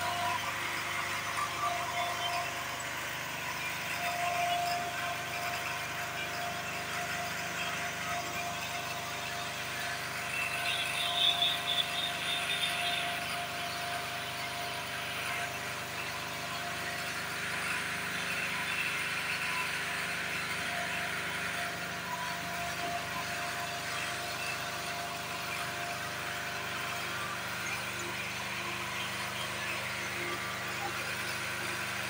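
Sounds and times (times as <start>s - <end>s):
steady mechanical hum: 0.0s - 32.0s.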